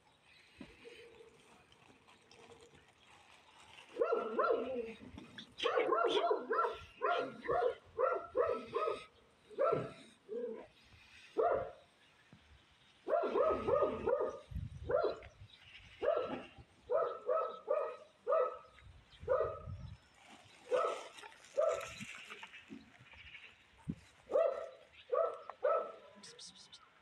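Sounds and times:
dog barking: 4.0s - 4.8s, 5.6s - 10.1s, 11.4s - 11.8s, 13.1s - 15.2s, 16.0s - 19.7s, 20.7s - 21.9s, 24.3s - 26.1s.

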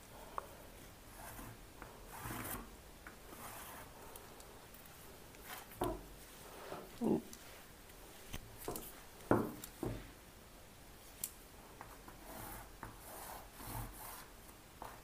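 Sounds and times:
chalk scratching on fabric: 1.1s - 2.7s, 3.3s - 4.0s, 12.2s - 15.0s.

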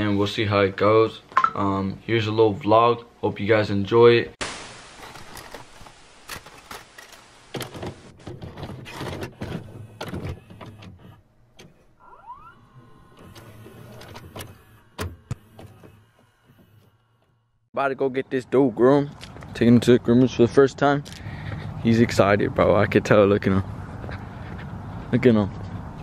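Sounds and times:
hiss: 4.4s - 6.3s
tape mechanism whirr: 4.8s - 17.6s
short rising whine: 12.0s - 16.2s.

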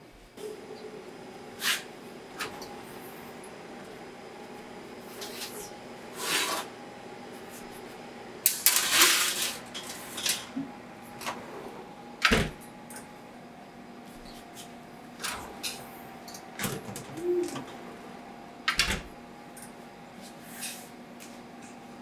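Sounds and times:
metal baking sheets clattering: 8.5s - 10.5s
oven door shutting: 8.5s - 13.2s, 15.1s - 19.6s.

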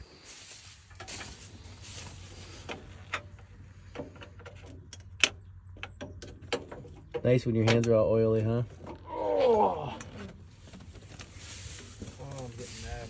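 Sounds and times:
rustling: 0.0s - 4.9s, 8.7s - 13.0s.

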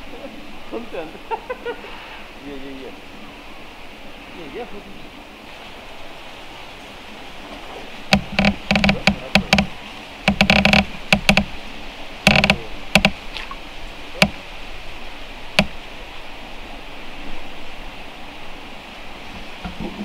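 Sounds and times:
sharp knocks and taps: 8.1s - 9.7s, 10.3s - 11.5s, 12.2s - 13.2s, 14.2s - 14.4s, 15.6s - 15.8s.

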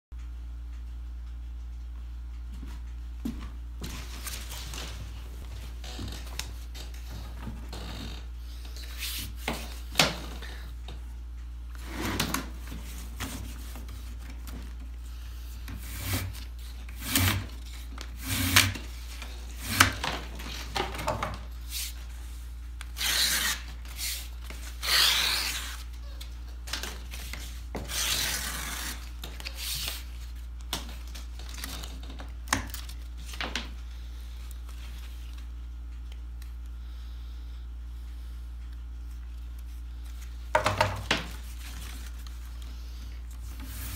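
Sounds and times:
steady low hum: 0.2s - 43.9s
knife scraping wood: 15.7s - 17.6s, 18.2s - 18.8s.

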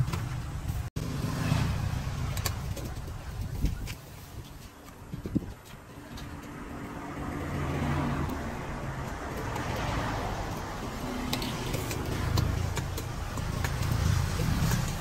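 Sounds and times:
vehicle passing by: 1.0s - 3.3s, 6.0s - 15.0s.

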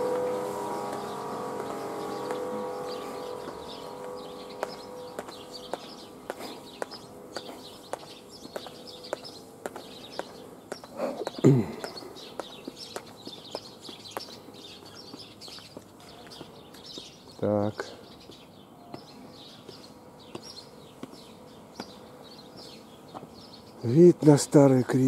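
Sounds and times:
sound gliding down in pitch: 0.0s - 5.6s
footsteps on stone: 0.0s - 17.2s, 18.2s - 23.4s
small birds chirping: 0.0s - 25.0s.

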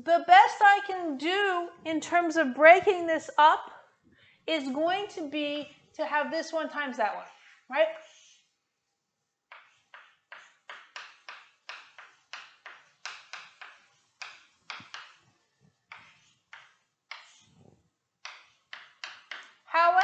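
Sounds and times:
chalk strokes on chalkboard: 6.6s - 19.6s.

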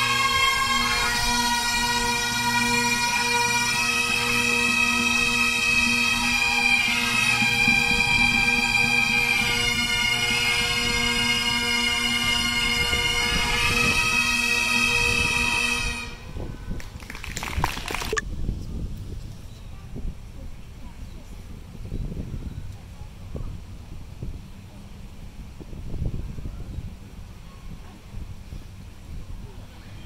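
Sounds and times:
bagpipe band playing: 0.0s - 16.3s.

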